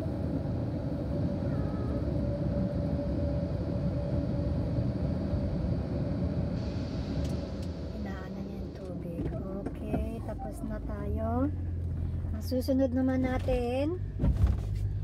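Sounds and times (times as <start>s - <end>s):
fan hum: 0.0s - 13.8s
blower dryer air rush: 2.0s - 8.8s.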